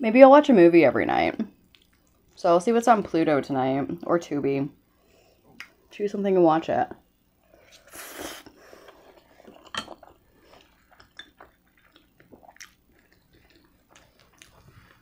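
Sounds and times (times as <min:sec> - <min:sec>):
soft wet chewing: 0:01.5 - 0:02.4, 0:07.6 - 0:15.0.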